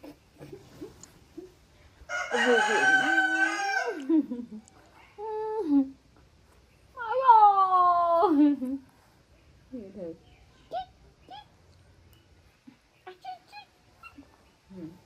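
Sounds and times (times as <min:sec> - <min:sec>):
rooster crowing: 0:02.1 - 0:04.1.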